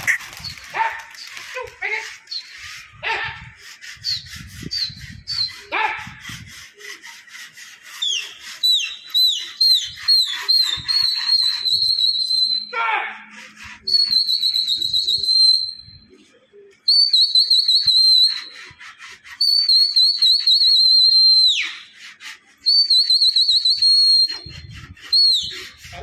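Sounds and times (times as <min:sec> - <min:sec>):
shrill warbling whistle blasts: 0:19.4 - 0:21.9, 0:22.6 - 0:25.8.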